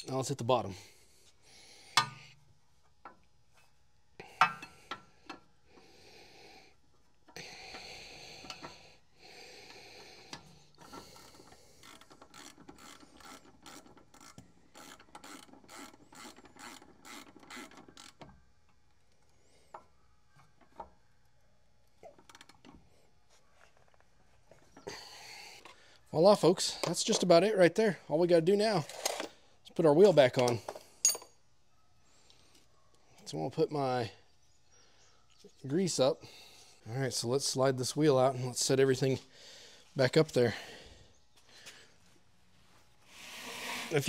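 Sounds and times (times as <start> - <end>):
hand ratchet clicking: 10.3 - 18.2.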